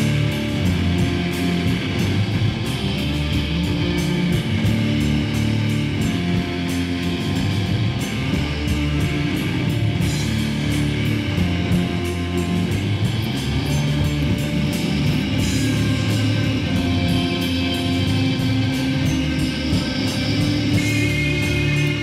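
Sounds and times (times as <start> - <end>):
loud rock music with guitar: 0.0 - 22.0.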